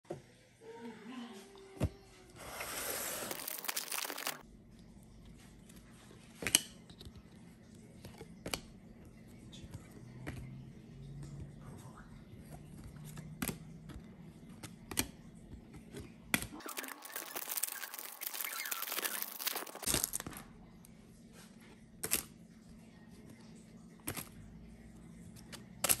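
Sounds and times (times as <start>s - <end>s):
foil pack tearing: 2.8s - 4.4s, 16.6s - 20.2s.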